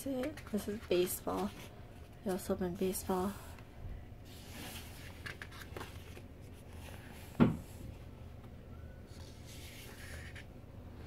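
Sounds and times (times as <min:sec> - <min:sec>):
paper pages rustling: 0:04.3 - 0:07.4, 0:09.1 - 0:10.5.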